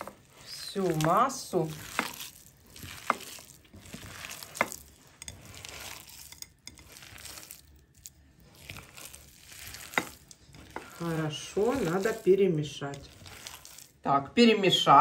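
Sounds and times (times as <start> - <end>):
hands squishing mixture in bowl: 0.0 - 15.0.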